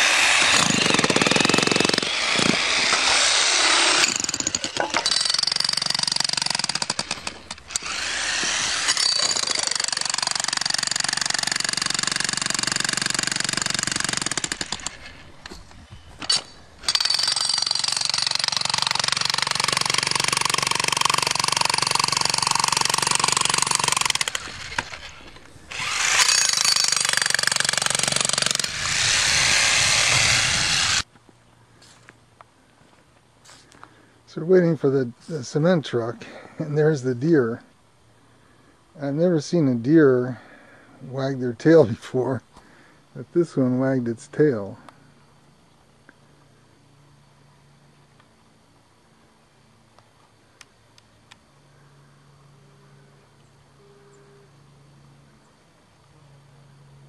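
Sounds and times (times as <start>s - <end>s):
jackhammer pounding rocky ground: 0.0s - 15.0s, 16.9s - 31.0s.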